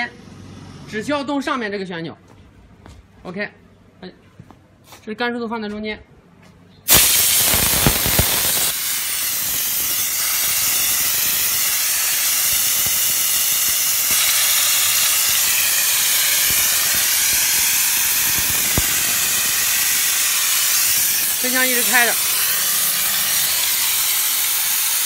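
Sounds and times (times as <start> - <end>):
steam jet hissing: 6.9 - 25.0.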